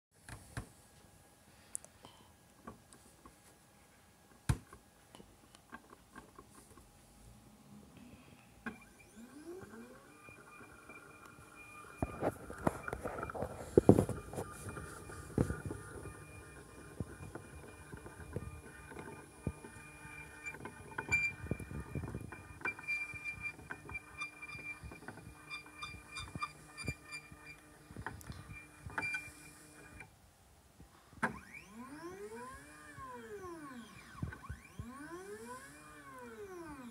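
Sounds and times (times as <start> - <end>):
rising whine: 8.9 - 27.3.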